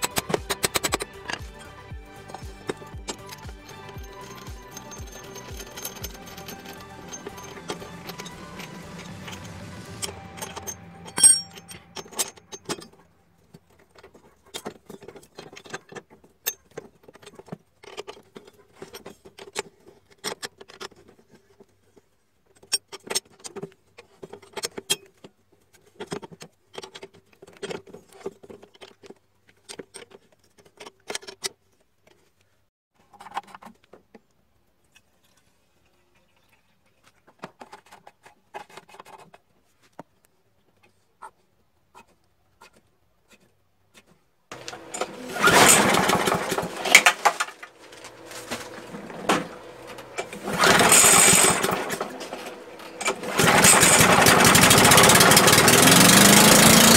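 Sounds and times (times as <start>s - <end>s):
background music: 0.0s - 13.2s
wrench clinking on metal blade: 2.3s - 8.7s, 10.0s - 13.0s.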